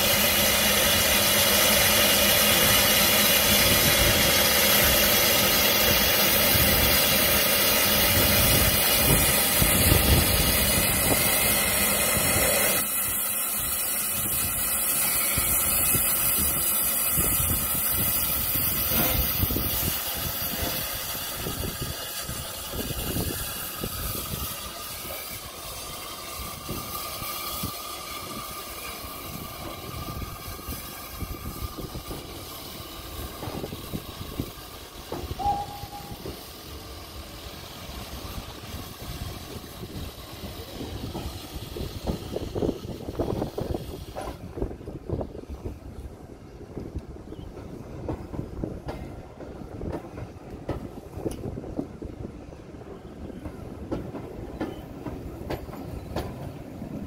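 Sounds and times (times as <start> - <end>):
locomotive running noise: 0.0 - 57.0
steam locomotive hissing steam: 0.0 - 57.0.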